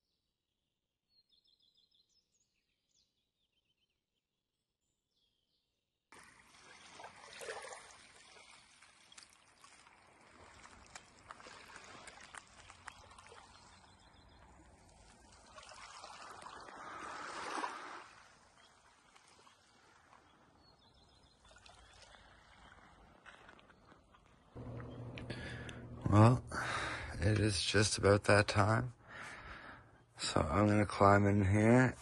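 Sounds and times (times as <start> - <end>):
water washing at shoreline: 6.1 - 29.7
small crackles: 8.4 - 16.6.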